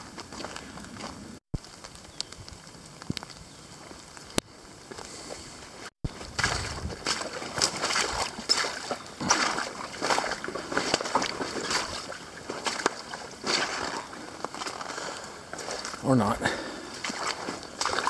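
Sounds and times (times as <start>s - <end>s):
footsteps splashing through water: 6.0s - 18.0s.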